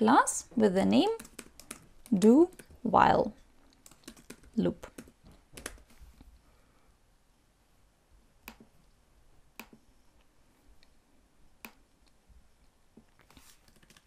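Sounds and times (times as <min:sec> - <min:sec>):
computer mouse clicks: 0:01.2 - 0:02.7, 0:03.7 - 0:05.9, 0:08.4 - 0:08.7, 0:09.5 - 0:09.8.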